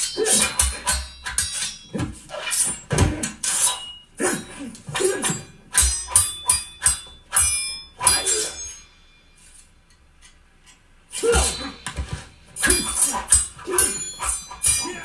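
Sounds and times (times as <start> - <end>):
steel swords clashing: 0.0 - 9.7, 11.1 - 15.0.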